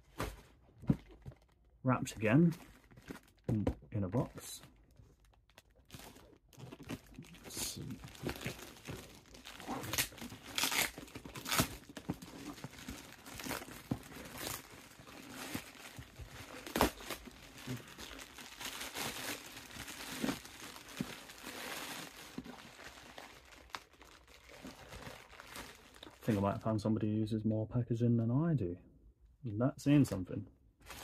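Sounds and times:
plastic bag crinkling and tearing: 2.4 - 3.6, 4.2 - 26.7.

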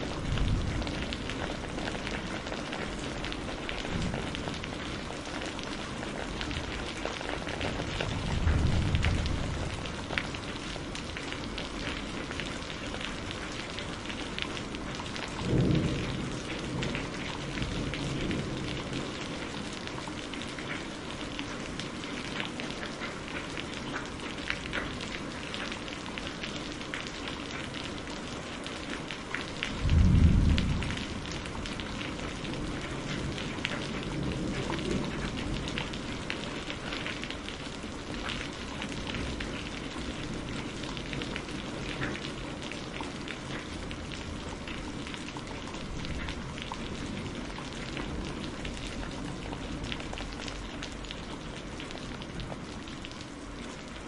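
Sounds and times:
steady rain falling: 0.0 - 54.0
low clap of thunder: 0.1 - 3.1, 7.6 - 10.3, 15.4 - 19.2, 29.7 - 35.9.

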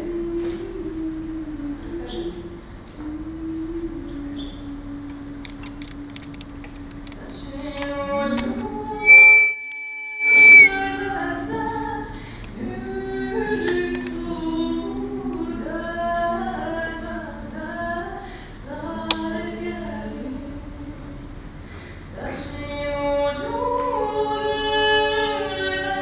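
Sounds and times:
women singing a cappella: 0.0 - 6.2, 7.0 - 9.2, 10.4 - 21.4, 22.0 - 26.0
loud steady high tone: 0.0 - 12.1.

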